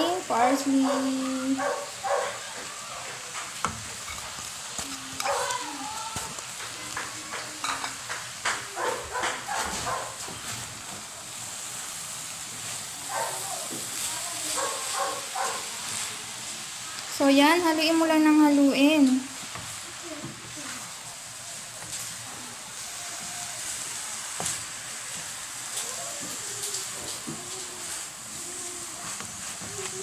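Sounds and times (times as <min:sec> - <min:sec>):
filling sizzling in a pan: 0:00.0 - 0:30.0
wooden spatula scraping a pan: 0:19.2 - 0:30.0.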